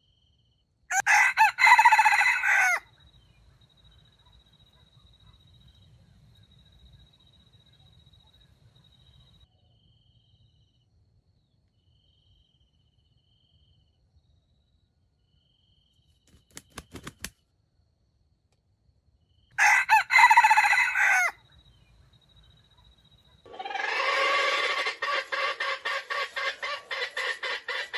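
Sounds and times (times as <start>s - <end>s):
rooster crowing: 0.9s - 2.9s, 19.6s - 21.4s, 23.5s - 27.9s.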